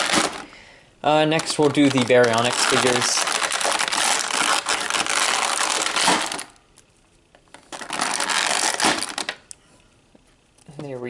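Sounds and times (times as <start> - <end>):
plastic packaging crinkling: 0.0 - 0.5, 1.1 - 6.6, 7.5 - 9.5.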